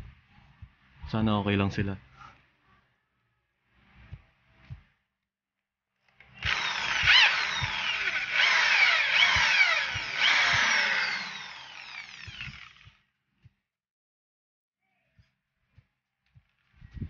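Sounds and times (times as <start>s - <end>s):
electric drill boring metal: 6.4s - 13.0s.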